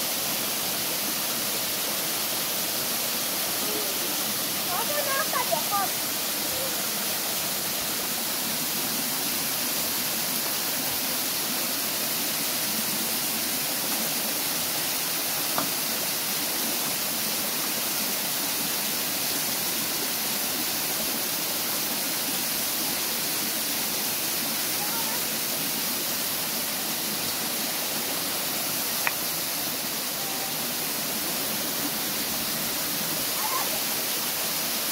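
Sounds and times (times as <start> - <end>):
running water rushing: 0.0 - 34.9
small click: 29.0 - 29.2.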